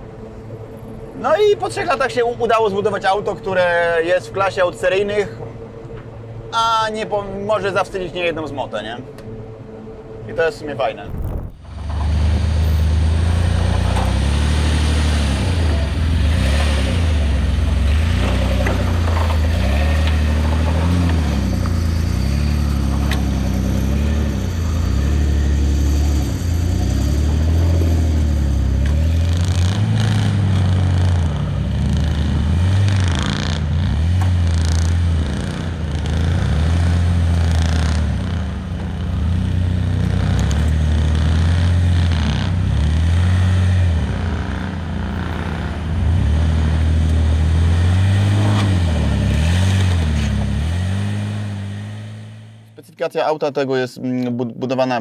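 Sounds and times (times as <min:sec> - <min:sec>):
car engine revving: 0:07.5 - 0:52.8
knocks and rattles: 0:18.1 - 0:21.8.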